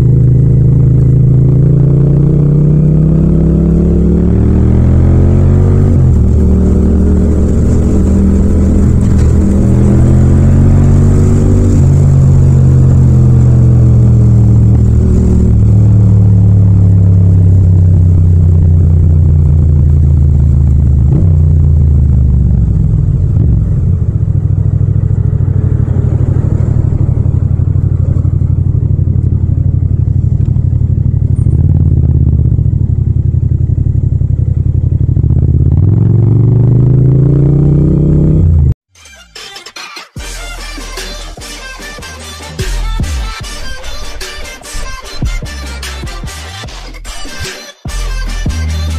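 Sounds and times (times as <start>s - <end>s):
motorcycle engine: 0.0s - 38.8s.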